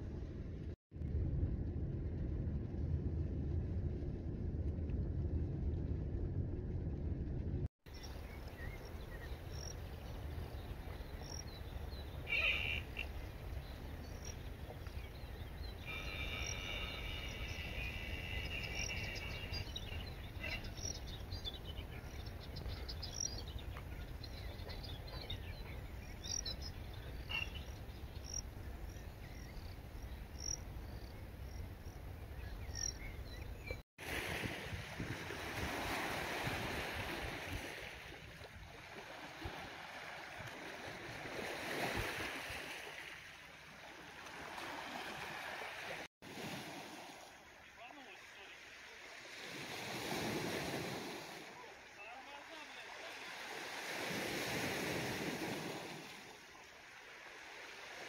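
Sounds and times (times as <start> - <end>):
steady low rumble: 0.0 - 9.3
surf washing onto shore: 34.0 - 58.0.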